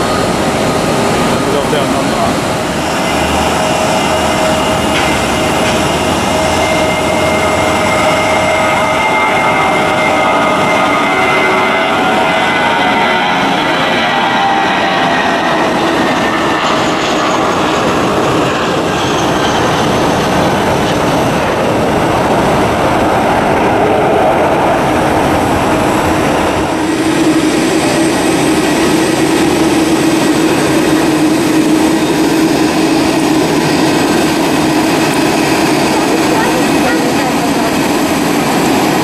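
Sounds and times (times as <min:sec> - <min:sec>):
jet engines at takeoff power: 0:00.0 - 0:39.0
jet engines humming while taxiing: 0:00.0 - 0:39.0.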